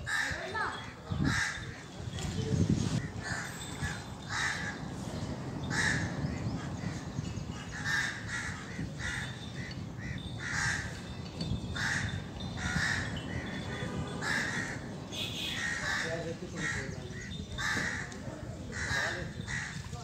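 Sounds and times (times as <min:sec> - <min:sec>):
crows cawing: 0:03.2 - 0:04.9, 0:05.6 - 0:07.0, 0:07.6 - 0:11.2, 0:11.8 - 0:19.8.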